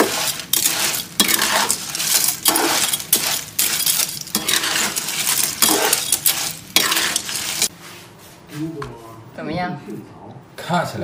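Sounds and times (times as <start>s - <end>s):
clam shells clattering in wok: 0.0s - 7.7s.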